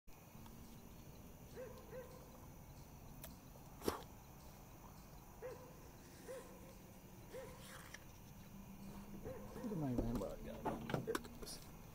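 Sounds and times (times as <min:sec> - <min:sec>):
dog barking faintly: 0:05.4 - 0:07.7, 0:09.2 - 0:10.0.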